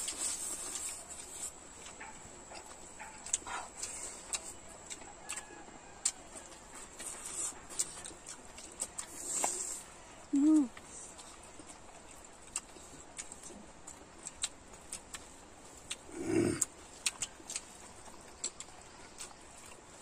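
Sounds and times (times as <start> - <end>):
wet chewing and lip-smacking: 0.0 - 20.0
low hum of voice: 10.2 - 10.8.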